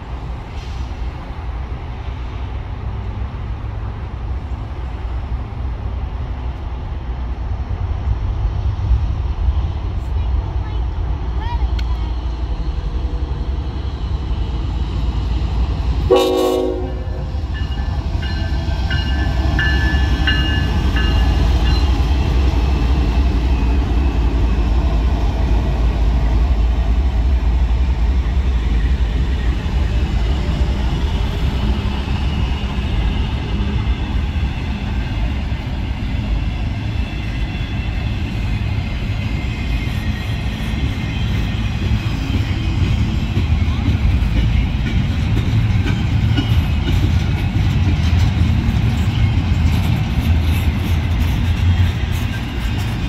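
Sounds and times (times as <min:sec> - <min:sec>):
diesel locomotive engines rumbling: 0:00.0 - 0:53.0
train horn blast: 0:16.1 - 0:17.3
freight cars rumbling and clattering: 0:17.1 - 0:53.0.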